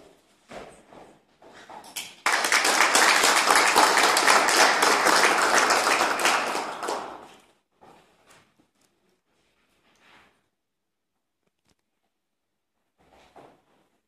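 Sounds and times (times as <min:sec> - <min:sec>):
small audience applauding: 0:01.9 - 0:07.5.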